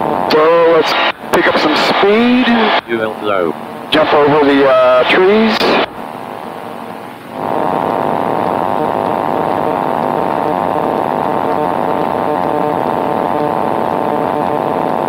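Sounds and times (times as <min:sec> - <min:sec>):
constant high hum: 0:00.0 - 0:15.0.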